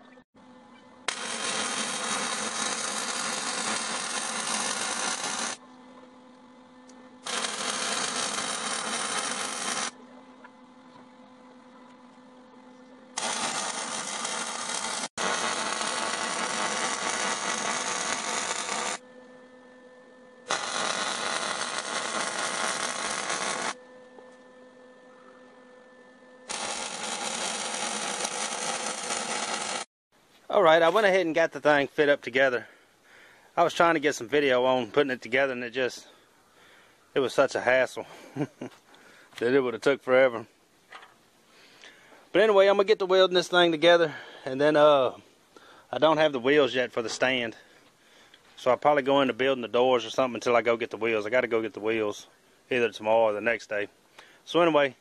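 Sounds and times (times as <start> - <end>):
welding arc crackling: 1.1 - 5.6, 7.2 - 10.0, 13.2 - 19.0, 20.5 - 23.8, 26.5 - 29.9
faint steady hum: 43.9 - 46.5.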